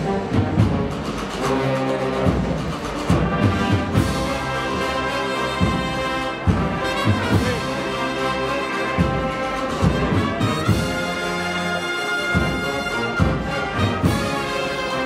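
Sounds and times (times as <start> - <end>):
low drum beats: 0.0 - 11.4, 12.2 - 15.0
brass band chords: 0.0 - 15.0.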